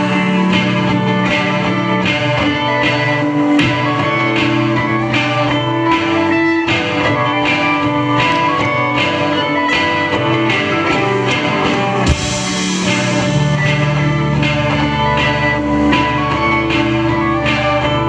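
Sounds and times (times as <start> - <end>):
live rock band playing: 0.0 - 18.0
cymbal crash: 12.0 - 14.8.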